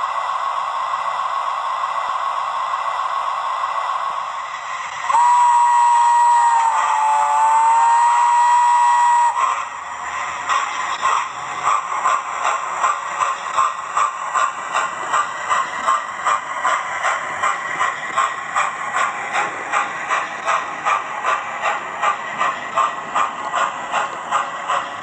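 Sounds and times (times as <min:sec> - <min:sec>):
steam exhaust chuffs: 0:00.0 - 0:25.0
model train chime whistle: 0:05.1 - 0:09.4.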